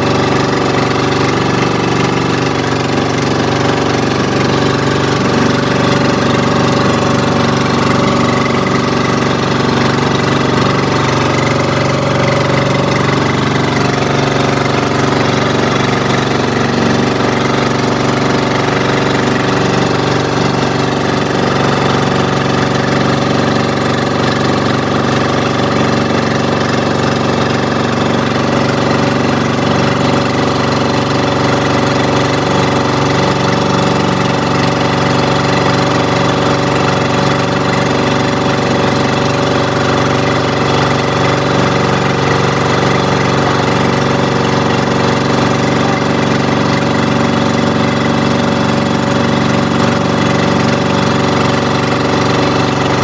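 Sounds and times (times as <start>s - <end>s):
boat engine droning: 0.0s - 53.0s.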